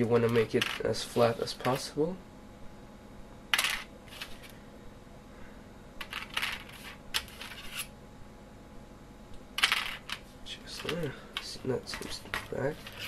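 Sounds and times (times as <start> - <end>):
wire scraping on cardboard: 6.8 - 7.9.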